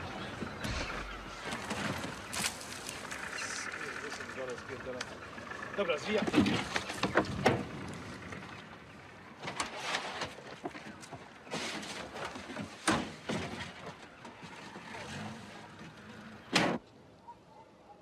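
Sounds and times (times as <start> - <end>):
car engine running low: 0.0 - 10.0.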